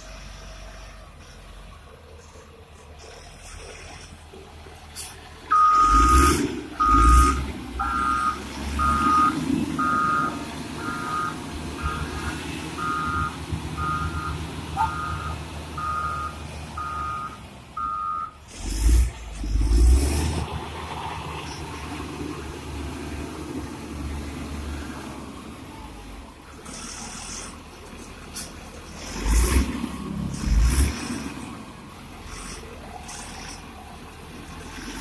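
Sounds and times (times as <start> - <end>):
diesel engine hum: 0.0 - 35.0
reverse alarm beeping: 5.5 - 12.2, 12.8 - 18.4.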